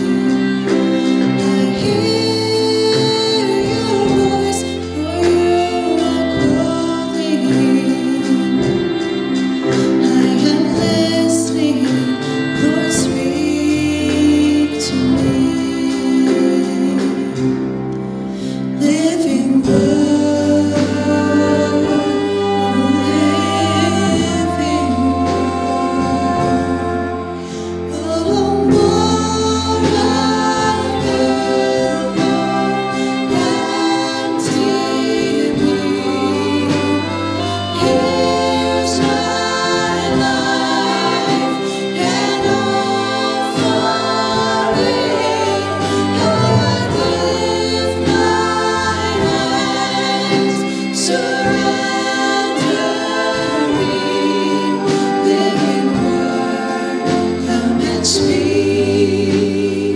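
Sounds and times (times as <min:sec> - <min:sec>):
keyboard: 0:00.0 - 0:59.9
piano: 0:00.0 - 0:59.9
violin: 0:00.0 - 0:59.9
women singing: 0:00.0 - 0:59.9
drum beat: 0:28.8 - 0:58.6.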